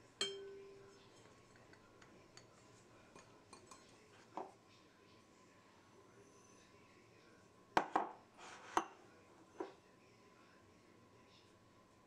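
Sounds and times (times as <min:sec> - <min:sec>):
ringing glass tone: 0:00.2 - 0:01.0.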